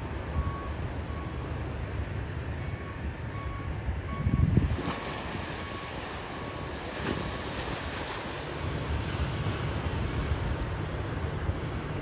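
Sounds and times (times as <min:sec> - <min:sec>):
faint short beep: 0:00.4 - 0:01.4
wind buffeting microphone: 0:03.8 - 0:05.6
small waves breaking on sand: 0:04.6 - 0:12.0.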